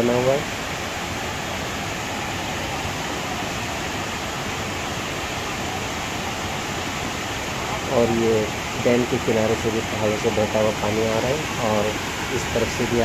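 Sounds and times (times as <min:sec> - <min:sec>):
water rushing over small dam: 0:00.0 - 0:13.0.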